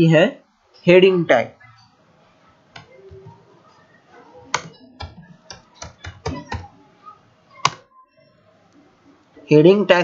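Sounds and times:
computer keyboard typing: 0:04.4 - 0:06.8.

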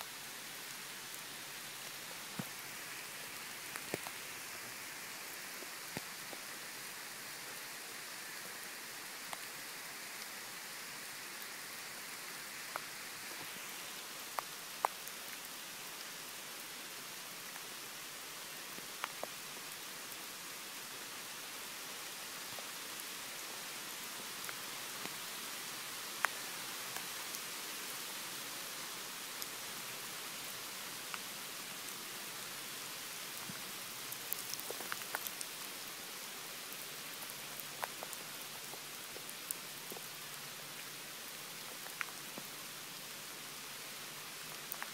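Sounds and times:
rain on pavement and grass: 0:00.0 - 0:44.9
raindrops ticking: 0:03.6 - 0:04.2, 0:33.3 - 0:35.9, 0:36.6 - 0:42.7, 0:44.4 - 0:44.9.

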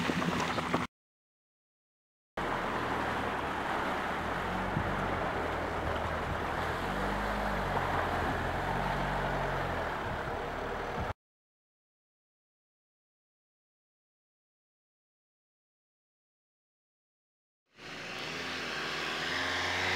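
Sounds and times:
water swishing around wheels: 0:00.0 - 0:00.9, 0:02.4 - 0:11.1.

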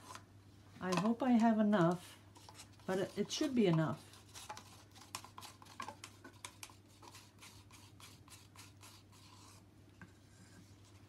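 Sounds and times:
plastic cups crinkling: 0:00.8 - 0:06.7.

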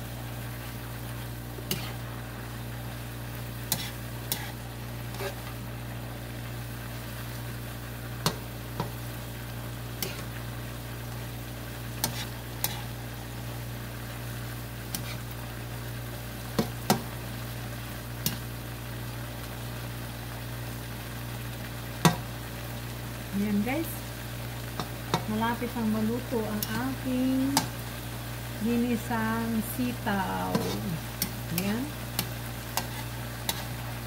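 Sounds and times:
steady low hum: 0:00.0 - 0:19.7, 0:21.6 - 0:34.0
food sizzling in a wok: 0:00.0 - 0:34.0
spatula knocking and scraping pan: 0:01.6 - 0:02.0, 0:03.7 - 0:05.5, 0:12.0 - 0:12.9, 0:30.4 - 0:31.4, 0:32.2 - 0:33.8.

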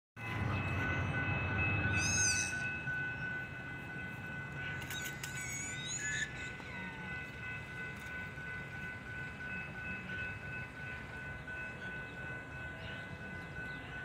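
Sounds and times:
railroad crossing bell ringing: 0:00.2 - 0:14.0.

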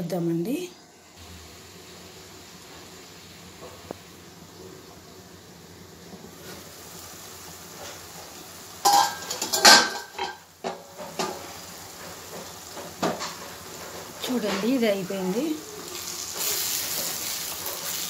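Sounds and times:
faint steady hiss: 0:00.0 - 0:18.0
metal pot lid clanking: 0:08.8 - 0:11.4.

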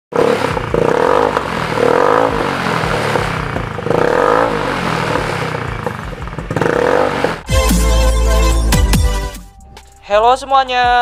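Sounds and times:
scooter engine revving: 0:00.1 - 0:08.7.

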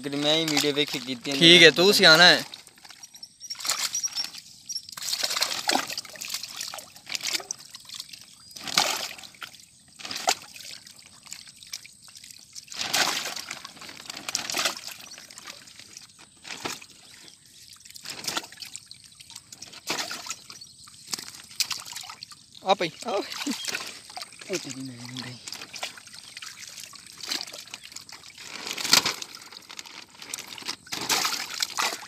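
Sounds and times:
water sloshing and splashing: 0:00.0 - 0:32.0.

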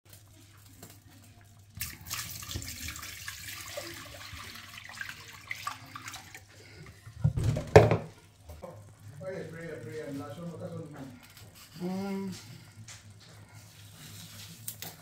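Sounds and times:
water pouring into a pot: 0:00.1 - 0:08.2.

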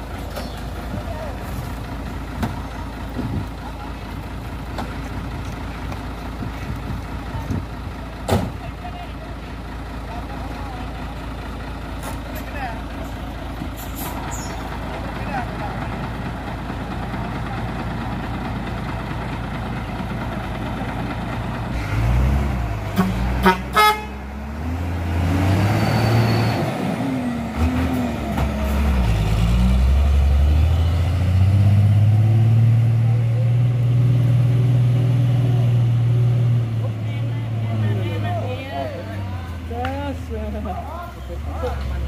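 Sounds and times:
diesel truck engine revving: 0:00.0 - 0:42.0
truck horn toots: 0:22.9 - 0:24.3.

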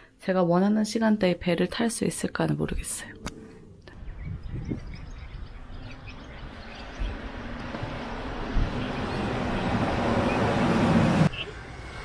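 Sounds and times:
vehicle engine and road noise: 0:03.3 - 0:12.0.

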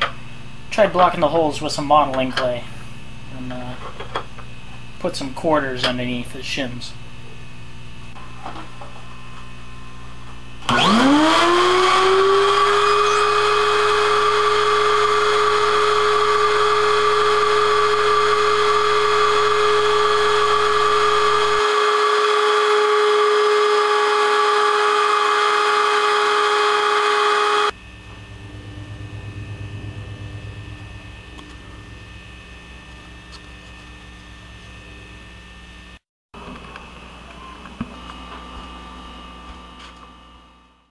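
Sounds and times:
vacuum motor whining: 0:10.6 - 0:36.0.

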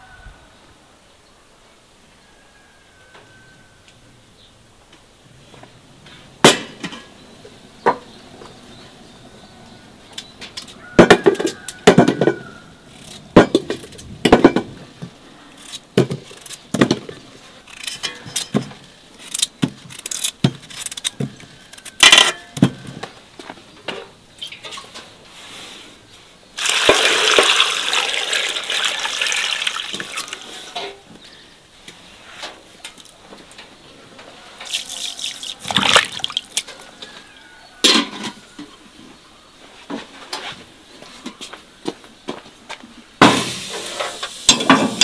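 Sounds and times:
water pouring into pot: 0:26.6 - 0:30.5, 0:34.7 - 0:36.6.

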